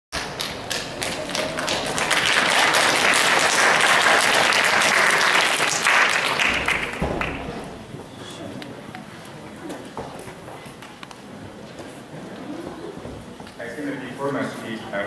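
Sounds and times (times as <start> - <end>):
audience applauding: 0.2 - 7.7.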